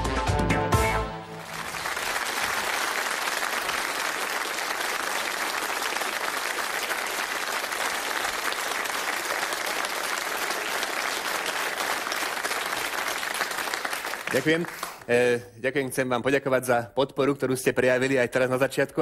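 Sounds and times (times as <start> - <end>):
studio audience applauding: 1.0 - 15.4.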